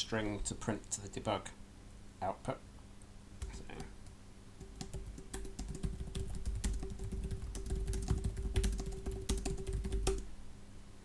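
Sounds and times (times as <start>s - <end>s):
typing on computer keyboard: 3.4s - 10.2s.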